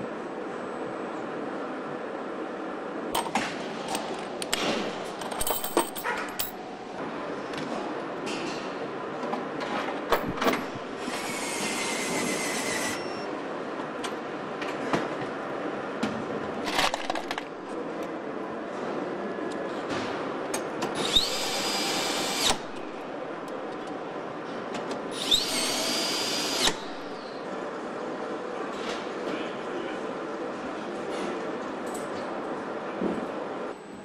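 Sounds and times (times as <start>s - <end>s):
steady machine hum: 0.0s - 16.6s
metallic clinks and clanks: 5.2s - 6.6s.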